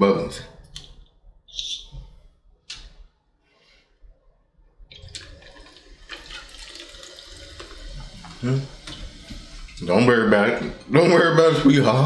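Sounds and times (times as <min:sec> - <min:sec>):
sparkling water pouring into bottle: 0:04.9 - 0:10.0.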